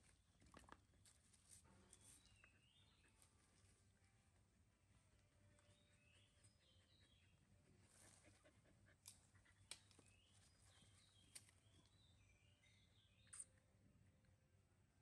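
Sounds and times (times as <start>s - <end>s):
faint bird chirps: 1.7s - 3.8s, 5.4s - 8.6s, 9.4s - 14.2s.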